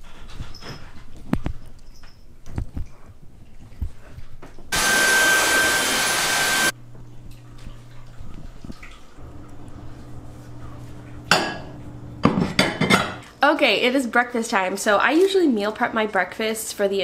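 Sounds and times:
vacuum cleaner whine: 4.7 - 6.8.

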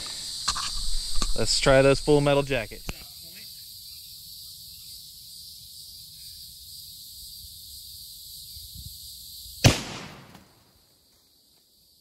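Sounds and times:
high insect buzz: 0.0 - 12.0
rifle shot with echo: 9.6 - 10.5.

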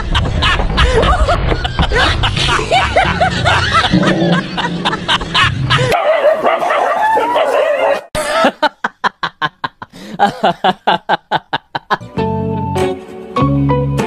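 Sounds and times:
staccato snickering laughs: 0.0 - 6.0
music: 12.0 - 14.0.

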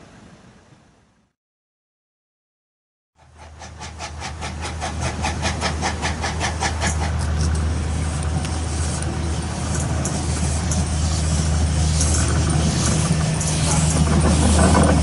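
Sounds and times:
steam locomotive exhaust chuffs: 3.2 - 15.0
train rolling rumble: 3.2 - 15.0.

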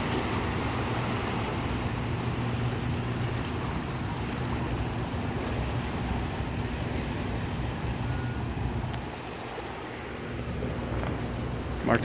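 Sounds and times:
low steady hum: 0.0 - 12.0
water rushing and churning: 0.0 - 12.0.

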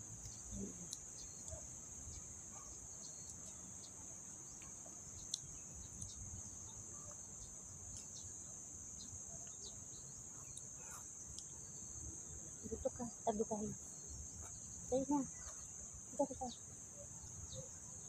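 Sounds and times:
faint ticks: 0.1 - 8.3, 9.0 - 11.7.

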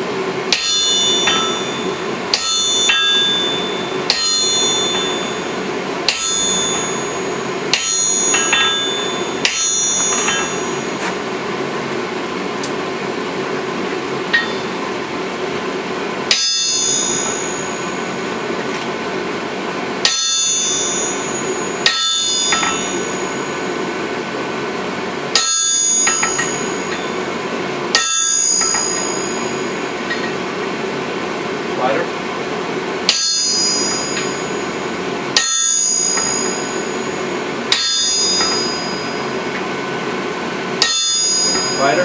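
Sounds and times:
sledgehammer striking metal: 0.5 - 11.3, 14.3 - 14.8, 16.3 - 18.7, 20.0 - 23.9, 25.3 - 27.2, 27.9 - 30.4, 33.0 - 39.5, 40.8 - 42.0.

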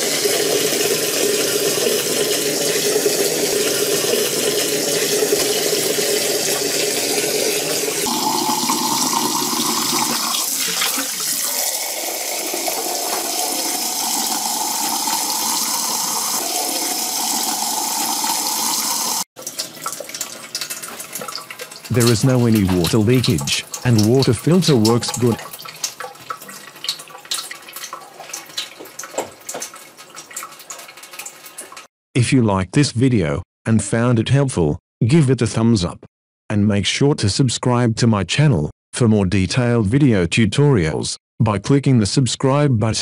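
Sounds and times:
tap water filling a glass: 0.0 - 31.9
water rushing through filter: 0.0 - 31.9
water splashing: 3.6 - 18.6, 19.4 - 31.9.

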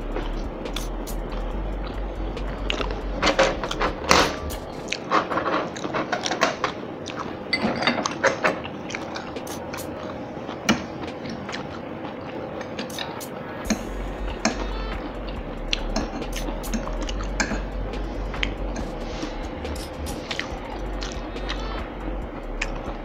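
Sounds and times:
chewing and crunching food: 0.0 - 23.0
forks clicking against plates: 12.8 - 13.3.

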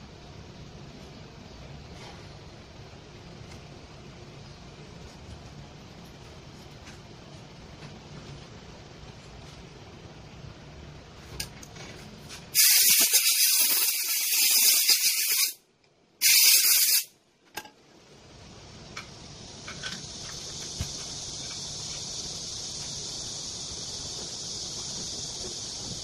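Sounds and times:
hissing blasts of pressurised gas: 12.5 - 15.6, 16.2 - 17.2.

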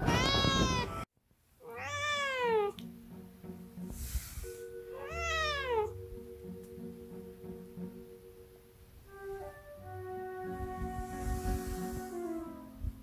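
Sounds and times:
cat meowing: 0.0 - 2.8, 5.0 - 6.0.

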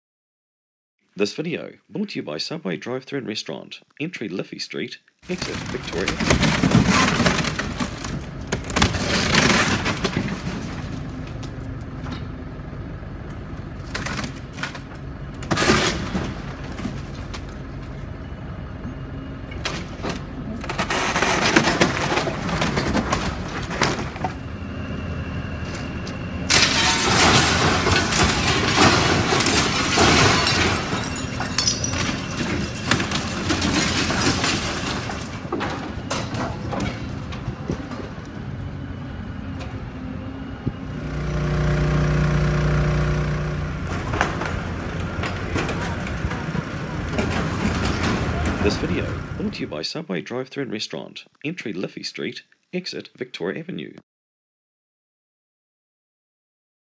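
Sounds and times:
building debris crashing and cracking: 5.3 - 12.0, 13.5 - 18.2, 19.5 - 24.6, 26.5 - 38.2, 43.7 - 49.7
excavator engine hum: 7.6 - 30.0, 31.2 - 49.7.

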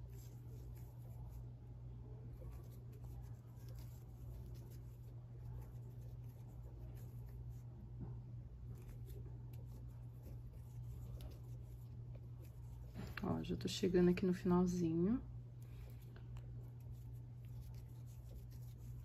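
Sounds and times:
crochet hook scratching thread: 0.0 - 1.5, 2.3 - 7.7, 8.7 - 13.2, 15.8 - 19.0
steady low hum: 0.0 - 19.0.

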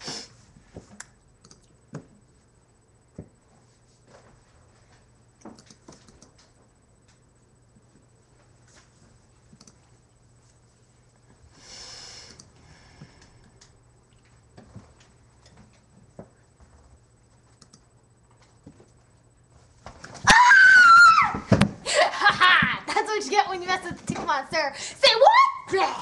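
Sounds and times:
breathy hiss: 0.0 - 0.5, 11.5 - 13.6.

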